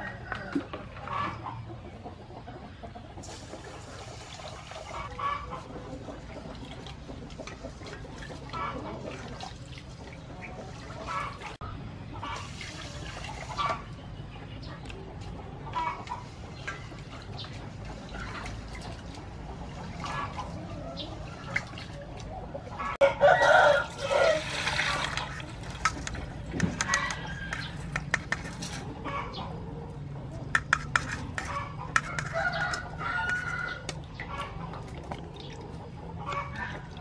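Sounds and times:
chickens clucking: 0:00.0 - 0:37.0
rooster crowing: 0:23.0 - 0:24.7
water pouring through strainer: 0:23.8 - 0:26.5.

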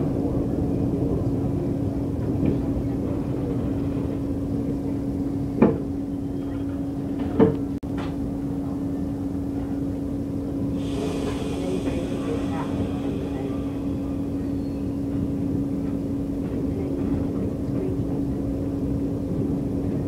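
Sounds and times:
subway car rumbling: 0:00.0 - 0:20.0
steady hum: 0:10.8 - 0:15.9.

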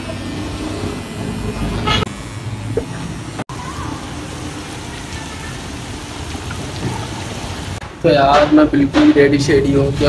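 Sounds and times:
heavy rain on street: 0:03.5 - 0:07.8.

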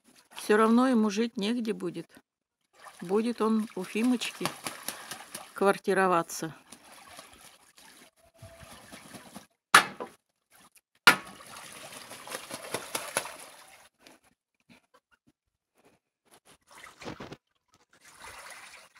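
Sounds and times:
goose splashing water with wings: 0:02.7 - 0:05.7, 0:06.5 - 0:09.5, 0:10.4 - 0:14.0, 0:16.6 - 0:17.4, 0:18.0 - 0:18.9.

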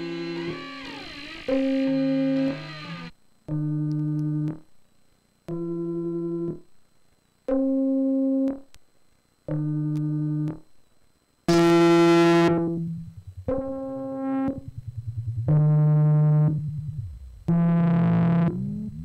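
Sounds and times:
synthesizer held notes: 0:11.5 - 0:19.0.

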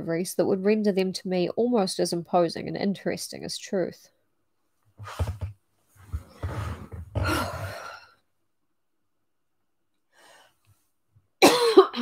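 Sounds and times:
woman sighing: 0:07.2 - 0:08.2.

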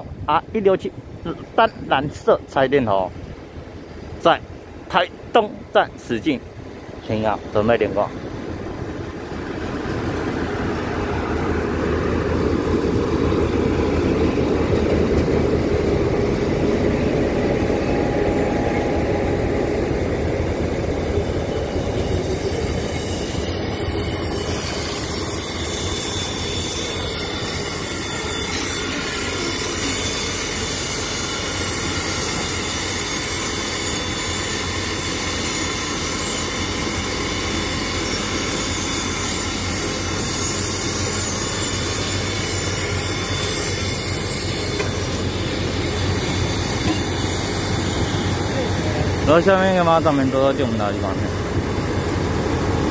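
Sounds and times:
diesel locomotive rumbling: 0:00.0 - 0:52.9
steam hiss: 0:15.6 - 0:52.9.

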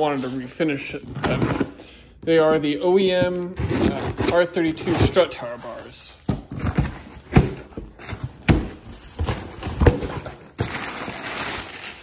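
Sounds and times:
packing paper rustling: 0:03.3 - 0:12.0.

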